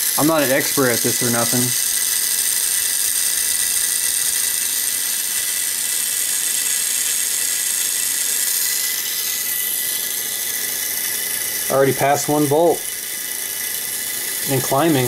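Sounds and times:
cooling fan: 0.0 - 15.0
small motor whirring through gears: 0.0 - 15.0.

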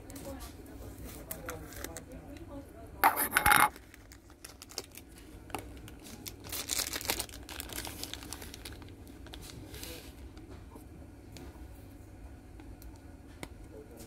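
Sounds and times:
plastic bag crinkling: 3.2 - 10.0.

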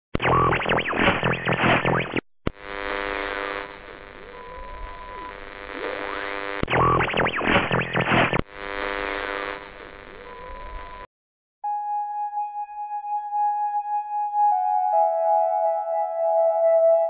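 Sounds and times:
harsh static-like noise sweeps: 0.2 - 11.1.

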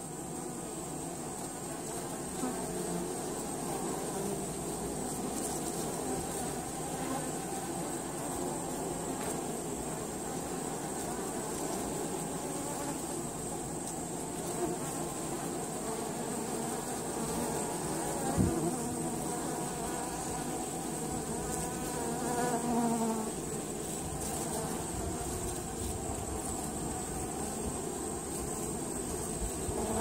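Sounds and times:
bees buzzing: 0.0 - 30.0.

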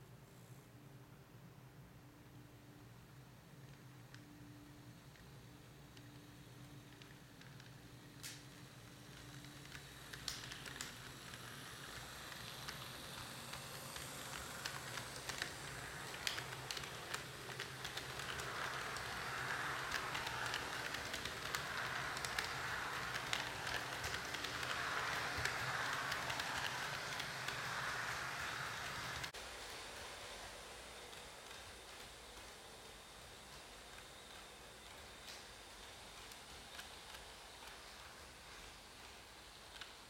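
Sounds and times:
model train wheels rattling: 6.9 - 32.9.

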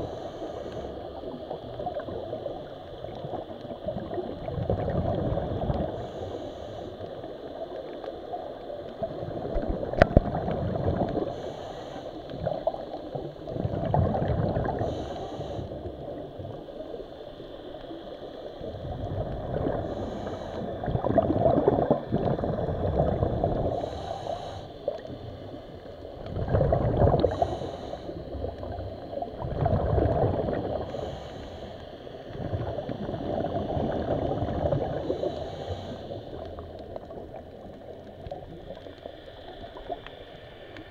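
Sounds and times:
regulator hiss: 0.0 - 3.8, 5.8 - 8.8, 11.2 - 13.4, 14.6 - 21.1, 23.5 - 26.2, 27.2 - 29.3, 30.5 - 40.9
underwater bubbling and gurgling: 0.0 - 40.9.

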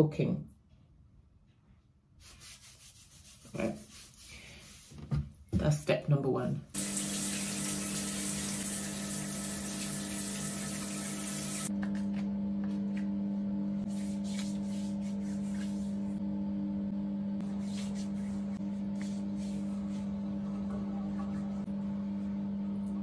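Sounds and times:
shower water running: 6.7 - 11.7, 17.4 - 23.0
soft rubbing noises: 17.4 - 20.2.

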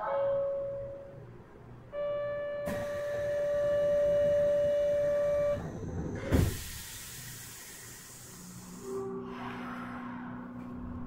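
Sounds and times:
train door buzzer: 1.9 - 7.8
train doors thump: 2.6 - 5.2, 6.2 - 7.0
hiss: 6.3 - 9.0.

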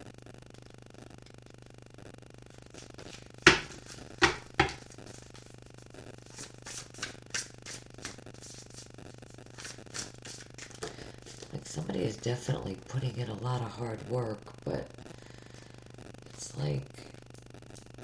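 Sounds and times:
cards shuffling: 2.6 - 11.6
sharp knocks on table: 3.5 - 4.8.

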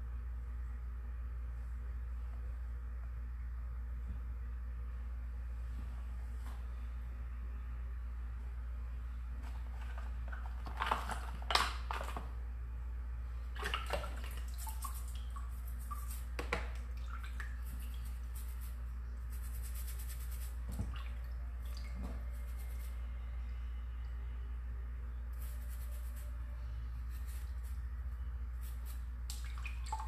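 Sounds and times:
steady low hum: 0.0 - 30.0
water splashing and dripping: 13.6 - 18.0, 20.7 - 22.2, 29.3 - 30.0
toothbrush bristles scratching: 14.6 - 16.4, 17.6 - 20.6, 22.3 - 23.0, 25.4 - 26.4, 27.0 - 27.9, 28.5 - 29.1.

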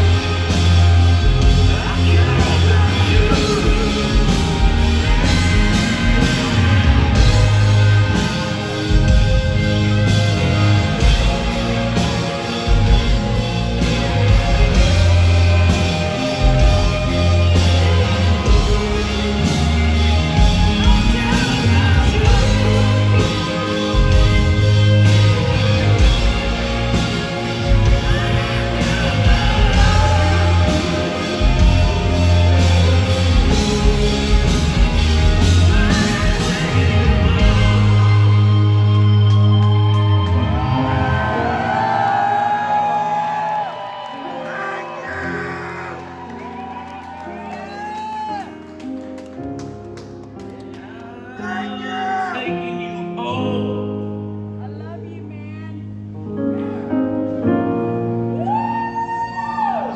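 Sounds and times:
drum kit: 0.0 - 40.7
bass notes: 0.0 - 42.5
electric guitars: 0.0 - 52.3
live rock band playing: 0.0 - 52.3.

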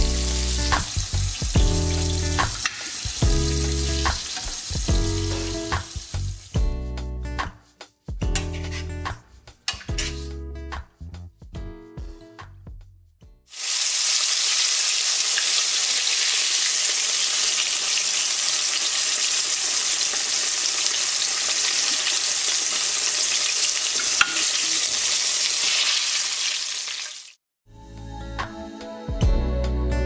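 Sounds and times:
meat deep-frying in oil: 0.0 - 6.6, 13.5 - 27.4.

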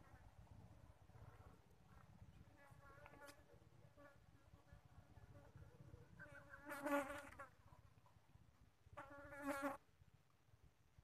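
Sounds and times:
flying insect buzzing past: 6.2 - 7.6, 9.0 - 9.8.

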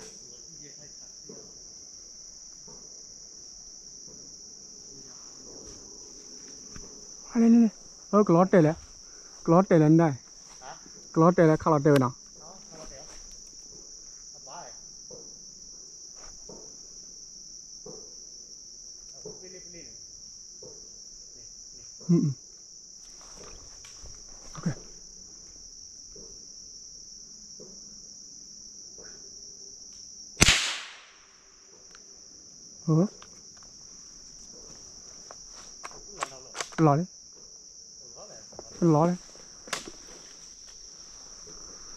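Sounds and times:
insects chirping: 0.0 - 41.9
loud sharp crack: 30.4 - 31.4.

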